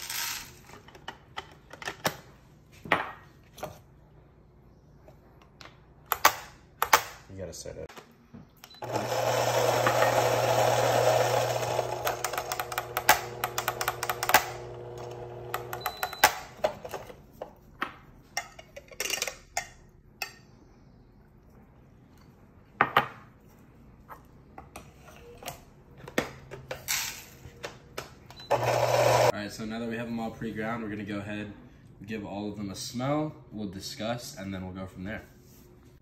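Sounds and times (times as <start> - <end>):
coffee grinder motor hum: 8.8 - 16.0, 28.4 - 29.3.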